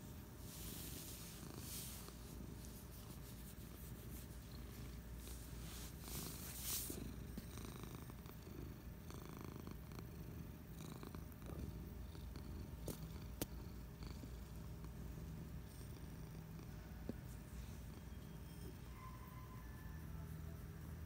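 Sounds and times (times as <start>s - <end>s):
brushing rustle: 0.0s - 7.5s
cat purring: 0.1s - 19.2s.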